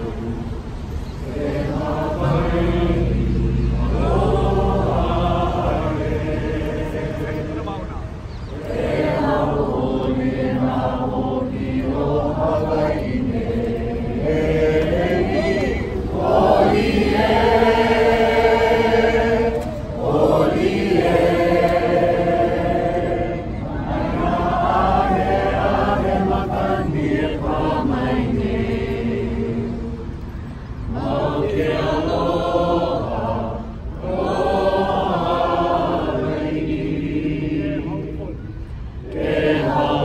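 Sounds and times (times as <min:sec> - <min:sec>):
group of voices chanting: 0:01.2 - 0:07.8, 0:08.5 - 0:30.0.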